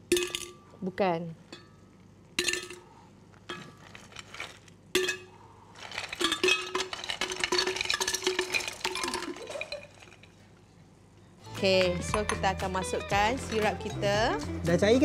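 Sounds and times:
glass ringing: 0:01.5 - 0:02.9, 0:11.6 - 0:14.4
ice cubes clinking in glass jug: 0:03.6 - 0:05.2, 0:05.8 - 0:10.4.

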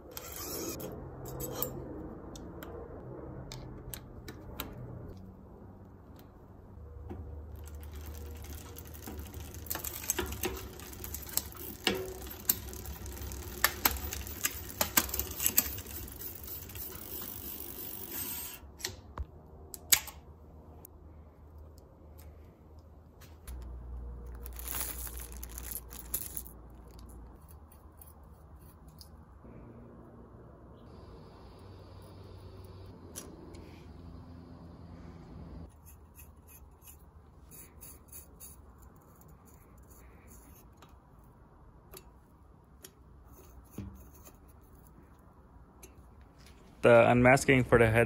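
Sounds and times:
bicycle drivetrain metal clicks: 0:07.1 - 0:19.0.

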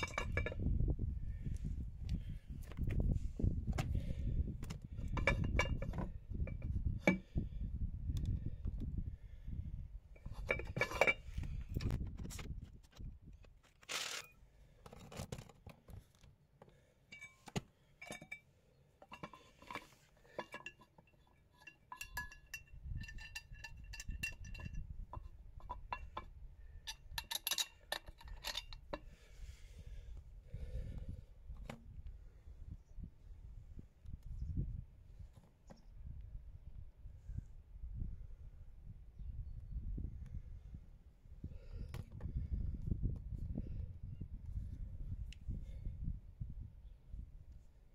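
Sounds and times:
metal parts clinking: 0:00.0 - 0:00.6, 0:26.8 - 0:29.0.

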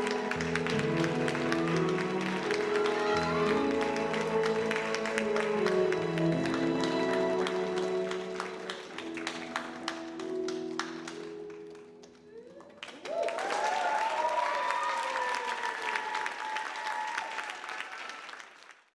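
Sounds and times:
audience cheering: 0:00.0 - 0:08.4, 0:12.4 - 0:18.6
audience applause: 0:00.0 - 0:18.9.

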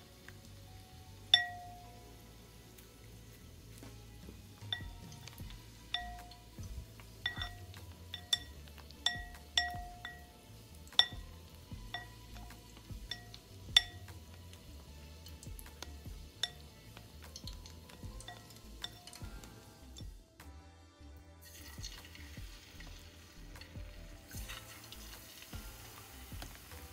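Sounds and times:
tongs clinking against glass bowl: 0:01.3 - 0:02.0, 0:04.6 - 0:14.5, 0:15.2 - 0:20.1.

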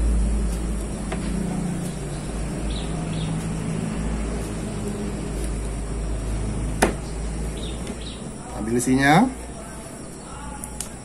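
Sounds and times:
low engine-like hum: 0:00.0 - 0:08.7.

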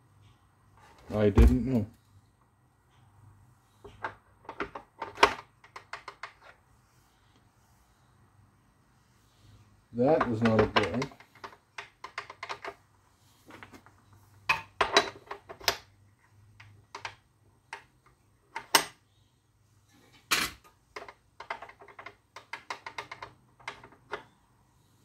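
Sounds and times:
tools clicking and knocking: 0:03.8 - 0:06.6, 0:10.1 - 0:12.8, 0:14.5 - 0:19.0, 0:20.1 - 0:24.4.

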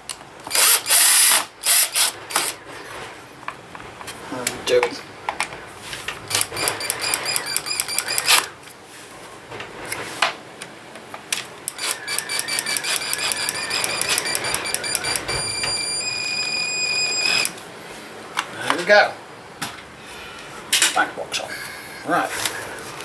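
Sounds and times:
cordless drill whining and clicking: 0:00.5 - 0:02.6, 0:06.3 - 0:08.5, 0:11.7 - 0:17.6.

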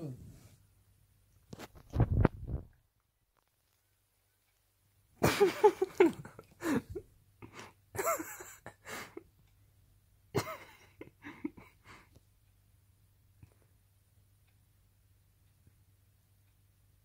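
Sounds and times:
person's stifled laughter: 0:05.2 - 0:09.2, 0:10.4 - 0:12.0.

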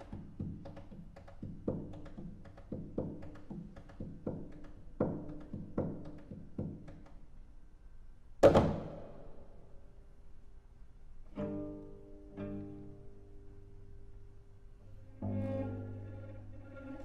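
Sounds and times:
cello percussive strokes: 0:00.0 - 0:07.2.

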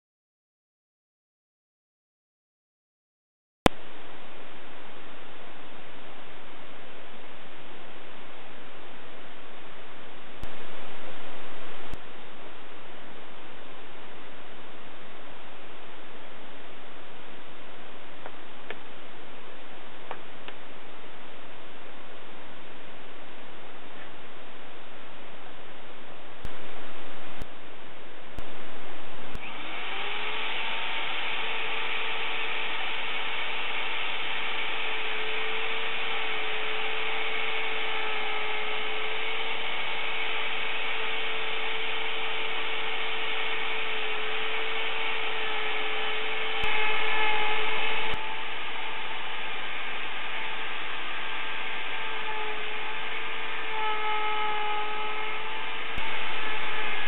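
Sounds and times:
router high whine routing wood: 0:29.3 - 0:57.0.

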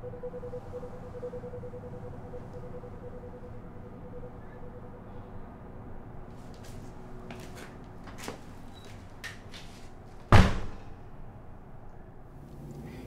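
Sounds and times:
road and engine noise in car cabin: 0:00.0 - 0:13.0
loud sudden thump: 0:10.3 - 0:10.8.

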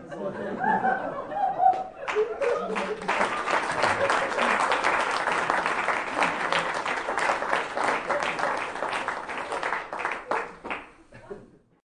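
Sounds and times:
audience applauding: 0:01.7 - 0:11.0.

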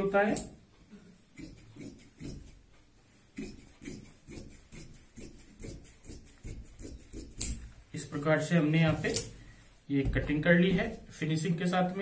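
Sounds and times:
scissors snipping fabric: 0:01.3 - 0:02.6, 0:03.4 - 0:07.6.

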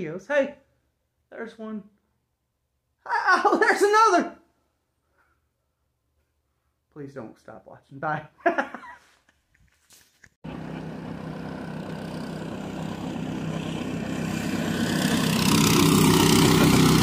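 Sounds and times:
model boat engine running: 0:10.4 - 0:17.0.

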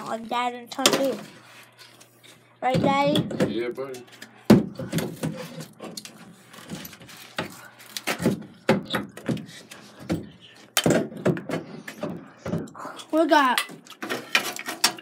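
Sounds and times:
hard objects knocking and rattling: 0:02.6 - 0:12.8, 0:13.5 - 0:15.0.

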